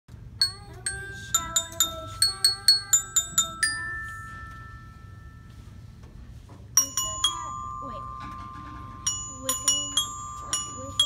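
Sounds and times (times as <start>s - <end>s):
glockenspiel notes: 0.4s - 6.0s, 6.8s - 11.0s.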